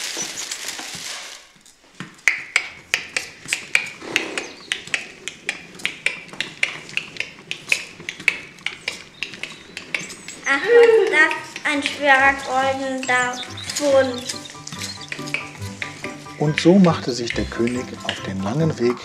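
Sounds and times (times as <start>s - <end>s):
horse hooves trotting: 0.0s - 19.0s.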